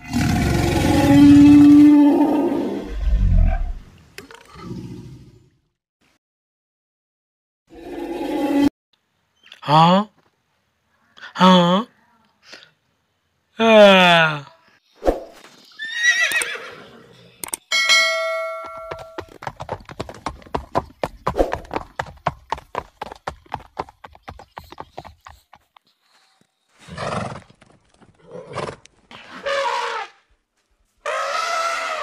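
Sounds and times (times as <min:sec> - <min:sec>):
bell-like ding: 0:17.7 - 0:19.2
horse hoofbeats clip-clopping: 0:18.3 - 0:26.4, 0:27.0 - 0:28.6.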